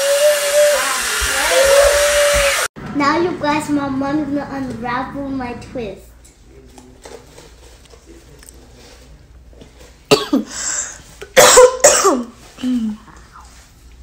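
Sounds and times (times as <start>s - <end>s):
person coughing: 10.1s - 10.6s, 11.4s - 13.0s.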